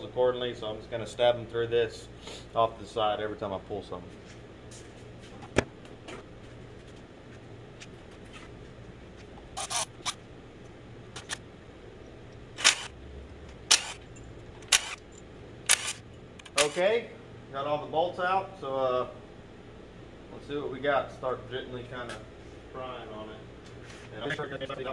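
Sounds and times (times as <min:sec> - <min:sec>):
faint steady hum: 0:00.0 - 0:24.9
sharp clicks and crunches: 0:09.6 - 0:10.2, 0:12.3 - 0:16.8.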